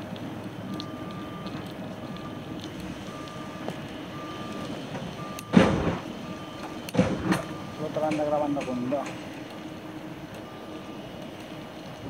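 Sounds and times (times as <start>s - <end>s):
vehicle engine and road noise: 0.0s - 12.0s
reversing alarm beeping: 0.6s - 11.7s
loud burst of noise: 4.7s - 6.2s, 6.9s - 8.1s.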